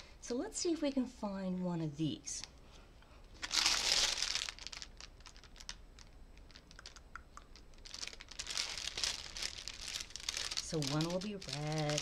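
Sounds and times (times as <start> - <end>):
plastic bag crinkling: 3.3 - 12.0
small clicks and crackles: 4.4 - 12.0.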